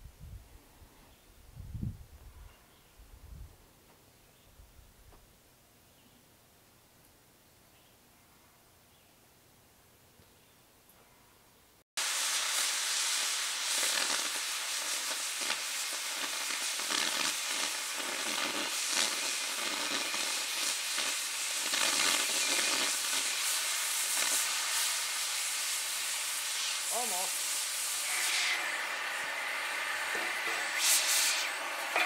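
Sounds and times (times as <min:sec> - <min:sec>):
cutting torch hissing: 0:12.0 - 0:32.0.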